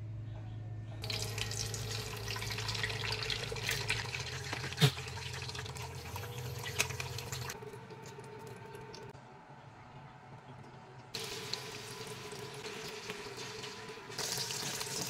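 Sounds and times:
egg sizzling in hot oil: 0:11.2 - 0:15.0.

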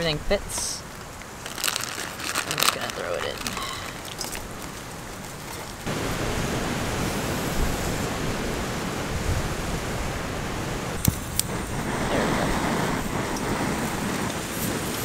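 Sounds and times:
strong wind on microphone: 0:05.8 - 0:15.0.

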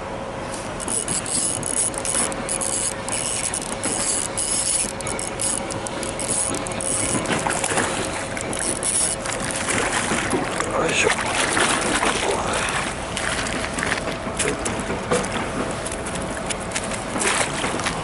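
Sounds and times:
fishing reel whirring: 0:00.6 - 0:10.8.

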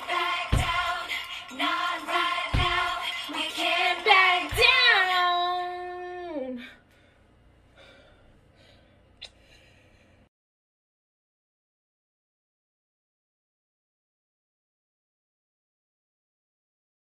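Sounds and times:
woman singing pop song: 0:00.0 - 0:06.7.

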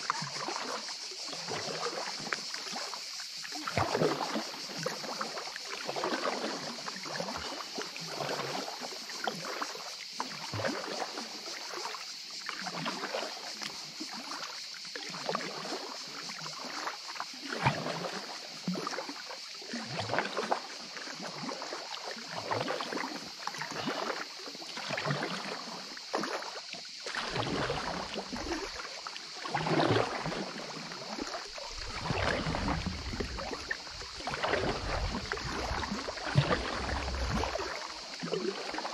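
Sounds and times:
paddle strokes splashing water: 0:00.0 - 0:38.9.

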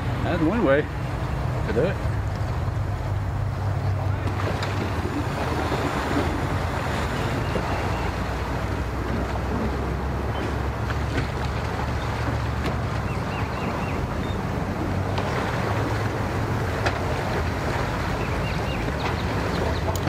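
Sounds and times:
water churning: 0:00.0 - 0:20.0
watercraft engine running: 0:00.0 - 0:20.0.

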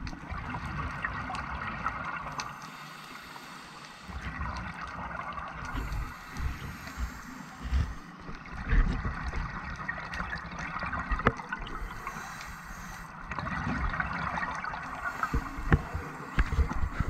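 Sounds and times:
underwater air bubbling: 0:00.0 - 0:17.0.

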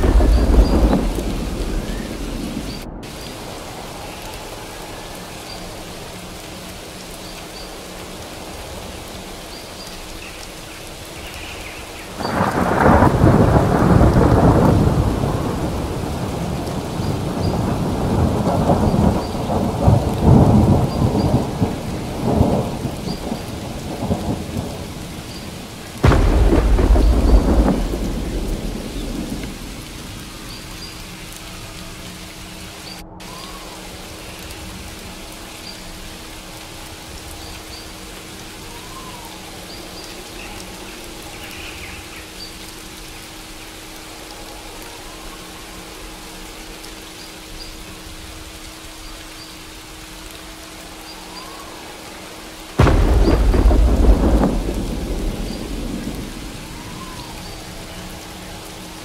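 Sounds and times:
thunder claps: 0:00.0 - 0:04.5, 0:12.1 - 0:31.2, 0:52.8 - 0:58.9
steady rain: 0:00.0 - 0:59.0.

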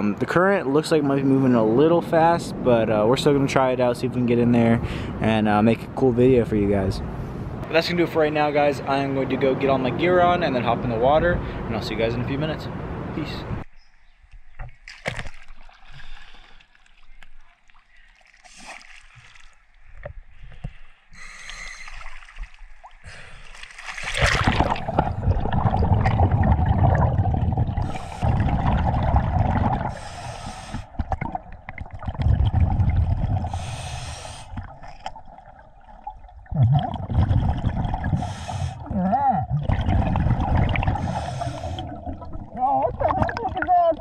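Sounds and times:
exhaled bubbles burbling: 0:24.0 - 0:30.1, 0:30.8 - 0:33.8, 0:34.5 - 0:44.0
regulator inhalation hiss: 0:30.0 - 0:30.9, 0:33.6 - 0:34.6, 0:38.2 - 0:38.8, 0:41.0 - 0:41.8.

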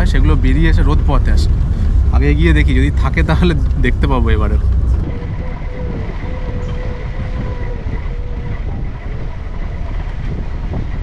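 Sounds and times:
faint steady whine: 0:00.0 - 0:11.0
vehicle engine and tyres rumbling: 0:00.0 - 0:11.0.

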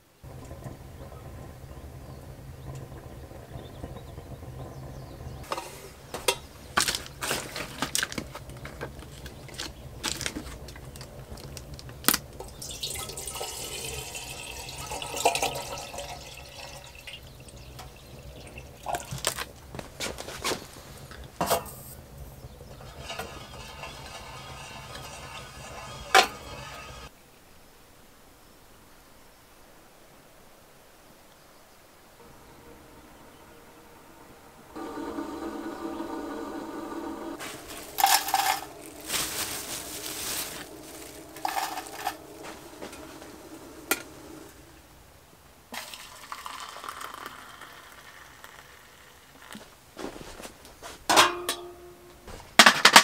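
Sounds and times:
water pouring into kettle: 0:00.3 - 0:19.8, 0:34.8 - 0:44.8, 0:45.7 - 0:49.6
kettle and bottle clunks: 0:05.5 - 0:11.1, 0:12.0 - 0:19.6, 0:21.2 - 0:21.8, 0:22.7 - 0:26.8, 0:37.4 - 0:38.8, 0:43.8 - 0:44.5, 0:45.8 - 0:47.3, 0:51.1 - 0:51.8.

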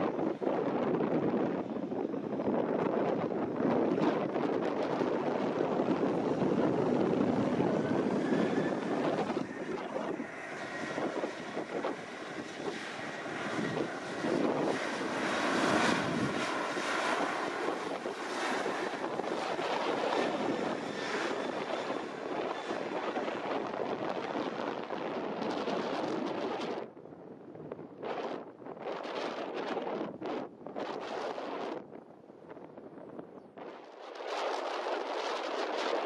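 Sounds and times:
jet engines roaring: 0:00.0 - 0:36.0
wind buffeting microphone: 0:00.0 - 0:36.0.

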